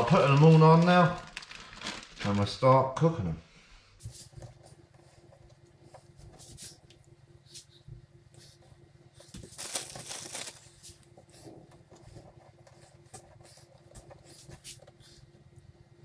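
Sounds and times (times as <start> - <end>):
plastic bag rustling: 0.0 - 2.8, 9.2 - 12.0
faint steady hum: 0.0 - 16.0.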